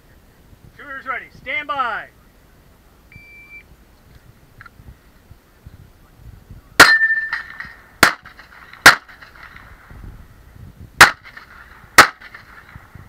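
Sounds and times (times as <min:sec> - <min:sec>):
shot timer beep: 0:03.1 - 0:03.7
handgun shots: 0:06.8 - 0:09.5, 0:11.0 - 0:12.7.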